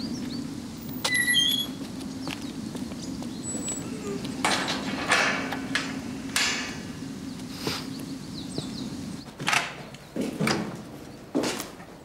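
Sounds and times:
metal doors clanking: 4.0s - 7.0s.

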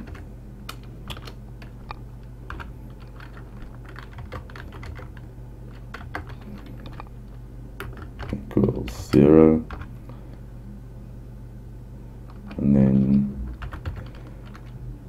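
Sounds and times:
keyboard keys clicking: 0.0s - 7.1s, 7.8s - 9.9s, 12.3s - 14.8s.

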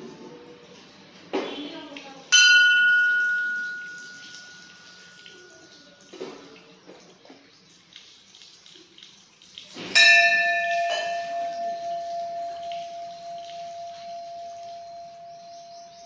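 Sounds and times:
metal bell struck and ringing: 2.3s - 5.4s, 10.0s - 16.0s
faint small clinks: 10.0s - 15.3s.

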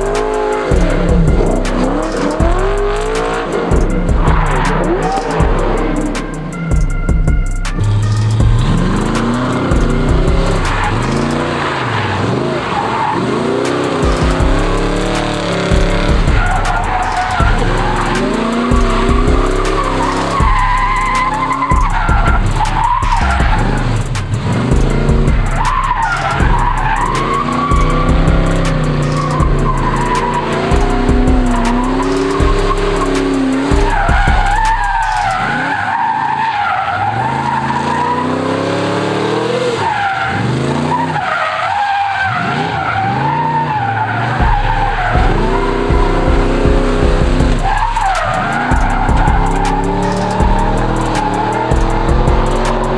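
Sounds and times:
truck engine revving: 0.0s - 52.9s
tyres squealing: 0.0s - 52.9s.

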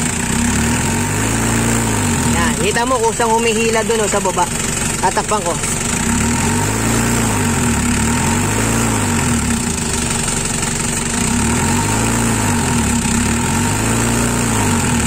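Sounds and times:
diesel engine idling rising and falling: 0.0s - 15.0s.

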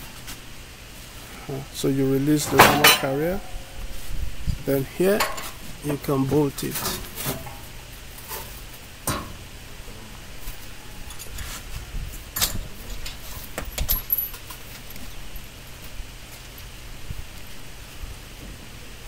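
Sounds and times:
metallic clinks of bolts and tools: 13.7s - 14.6s.

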